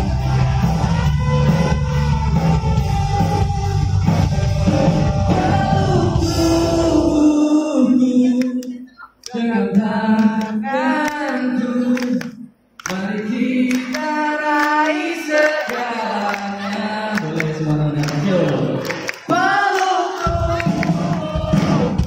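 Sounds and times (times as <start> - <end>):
voices singing: 5.2 - 22.0.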